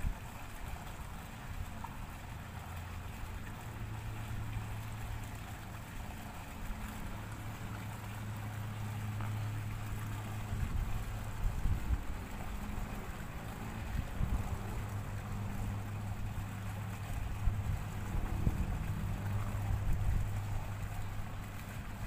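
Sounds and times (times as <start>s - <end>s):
low motor hum: 0.0s - 22.0s
wind buffeting microphone: 10.4s - 22.0s.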